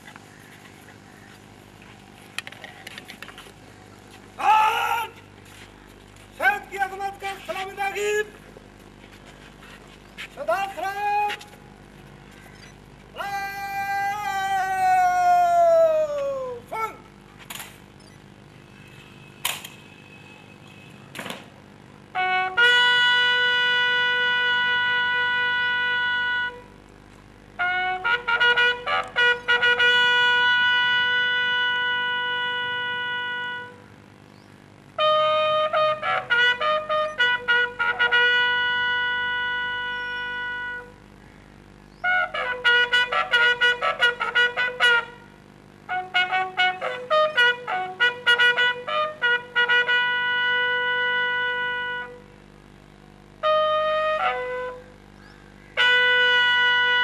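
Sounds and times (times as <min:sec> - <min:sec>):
bugle call: 0:04.4 - 0:05.7, 0:06.3 - 0:08.5, 0:10.4 - 0:17.2, 0:22.1 - 0:26.8, 0:27.6 - 0:33.9, 0:35.0 - 0:41.0, 0:42.0 - 0:52.5, 0:53.3 - 0:57.0.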